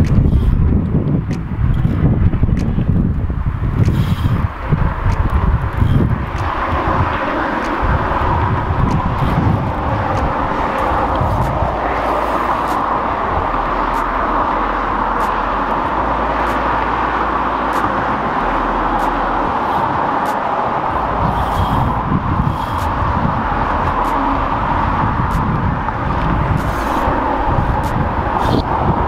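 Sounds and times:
road traffic on bridge: 0:00.0 - 0:29.0
wind buffeting microphone: 0:00.0 - 0:29.0.

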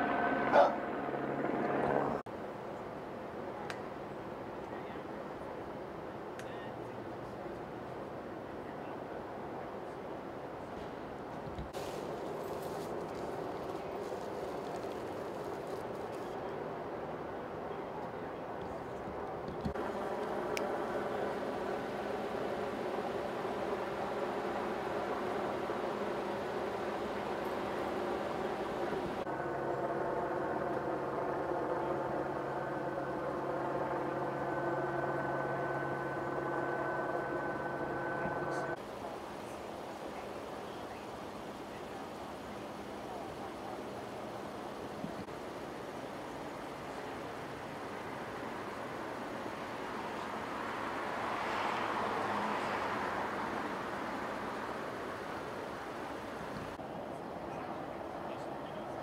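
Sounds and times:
vehicle passing: 0:00.0 - 0:02.2, 0:19.7 - 0:38.8, 0:48.3 - 0:56.5
outdoor traffic noise: 0:00.0 - 0:59.0
car engine idling: 0:19.8 - 0:38.8
thin high whine: 0:19.8 - 0:38.8.

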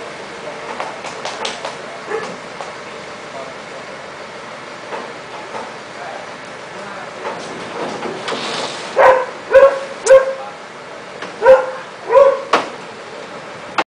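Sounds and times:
dog barking: 0:02.1 - 0:02.4, 0:09.0 - 0:10.4, 0:11.4 - 0:12.6.

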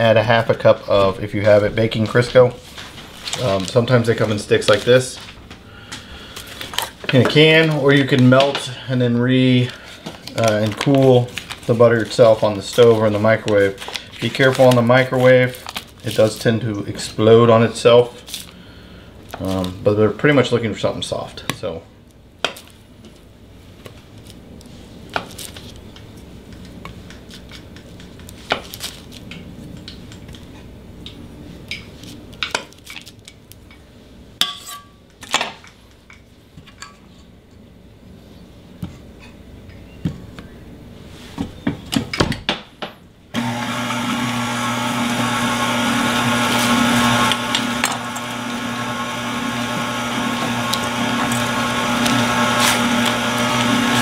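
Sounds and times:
stand mixer humming and whining: 0:43.4 - 0:54.0.

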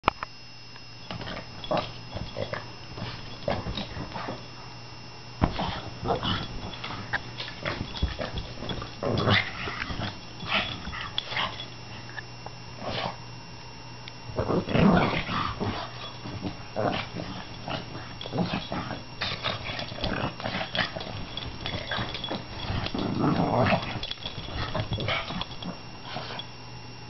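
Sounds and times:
dog play-growling: 0:01.1 - 0:04.5, 0:05.4 - 0:12.2, 0:12.8 - 0:13.2, 0:14.3 - 0:26.5.

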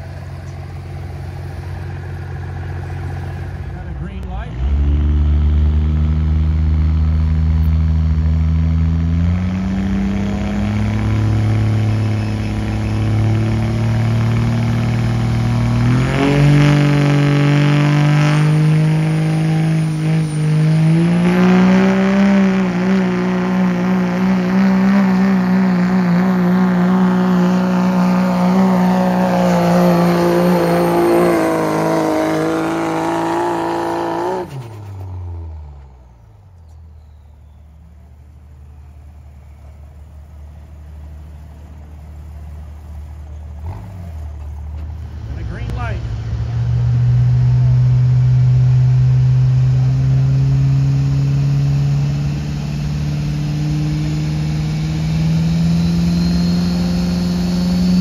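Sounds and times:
diesel engine at full throttle: 0:00.0 - 0:58.0.

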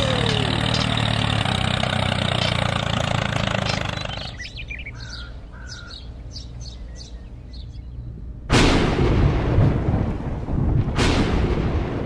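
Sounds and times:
motor running: 0:00.0 - 0:04.5
birds chirping: 0:00.0 - 0:08.2.

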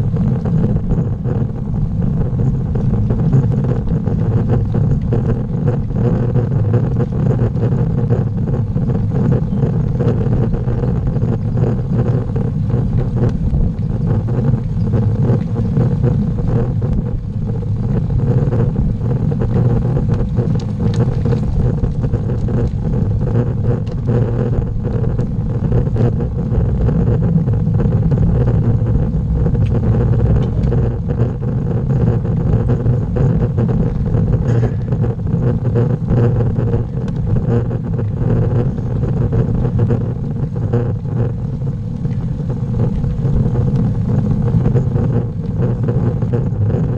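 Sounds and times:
bicycle tyres ticking on tarmac: 0:00.0 - 0:46.9
wind and road rumble: 0:00.0 - 0:46.9.

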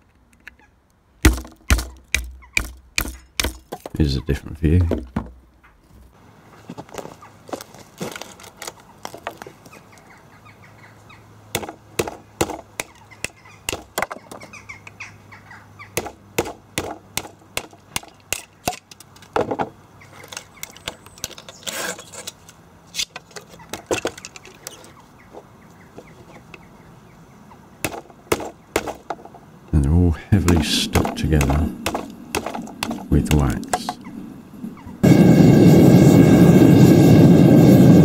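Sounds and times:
hammer knocking on metal punch: 0:01.2 - 0:03.8, 0:30.5 - 0:33.8.

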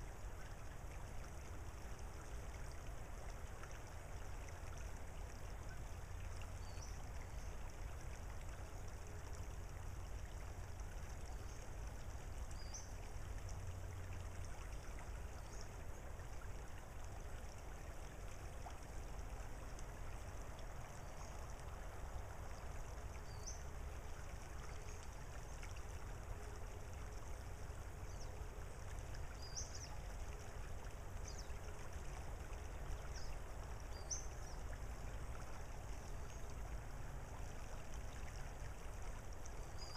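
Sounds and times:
water trickling over gravel: 0:00.0 - 0:39.9.

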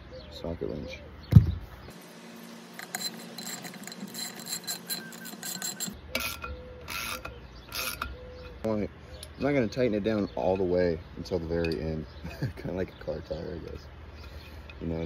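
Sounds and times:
ratchet wrench clicking: 0:02.7 - 0:08.1.

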